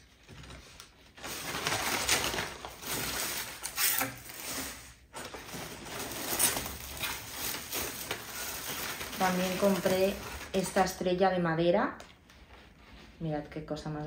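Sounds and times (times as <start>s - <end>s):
packing paper crinkling: 0.0s - 11.1s
plastic bag rustling: 0.0s - 11.3s.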